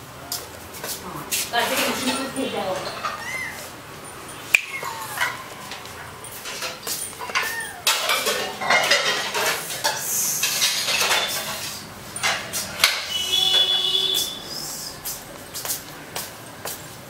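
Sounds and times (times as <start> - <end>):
dishes and cutlery clinking: 1.6 - 14.4.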